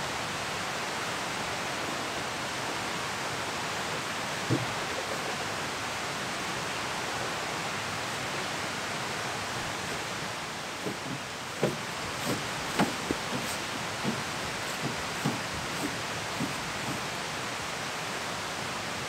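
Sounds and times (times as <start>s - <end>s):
outdoor rushing hiss: 9.3s - 19.0s
soft thump: 10.8s - 17.0s
footsteps on forest floor: 10.8s - 17.1s.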